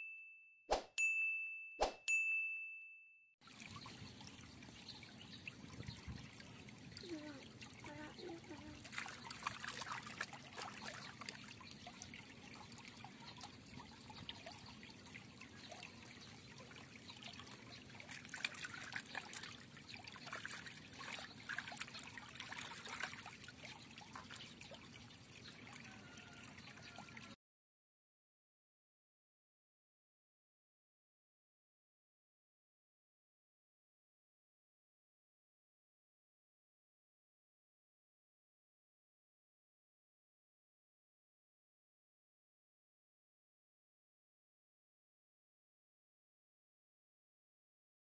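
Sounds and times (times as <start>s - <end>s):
shallow stream trickling: 3.4s - 27.4s
hands splashing in water: 8.8s - 11.4s.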